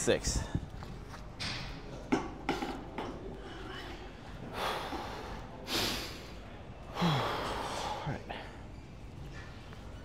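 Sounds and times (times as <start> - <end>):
man breathing hard: 6.9 - 8.4.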